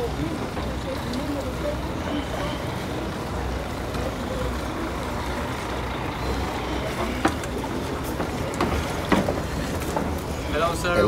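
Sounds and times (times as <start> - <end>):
faint distant voices: 0.0 - 11.0
harbour rumble and hiss: 0.0 - 11.0.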